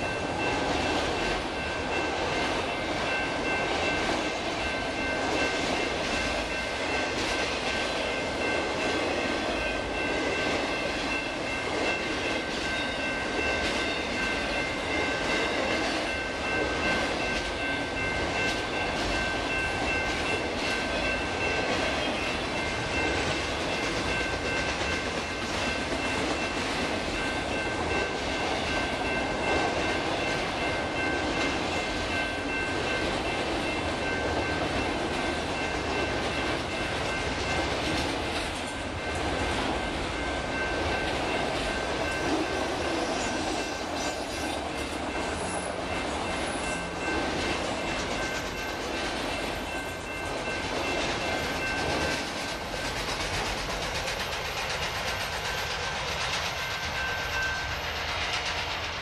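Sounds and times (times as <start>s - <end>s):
crossing warning bell ringing: 0.0s - 59.0s
freight train wheels clattering: 0.0s - 59.0s.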